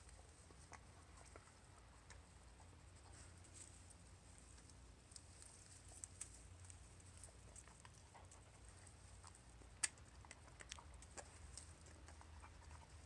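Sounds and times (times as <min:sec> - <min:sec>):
dog eating berries: 0:00.0 - 0:13.0
leaves rustling: 0:03.0 - 0:07.9.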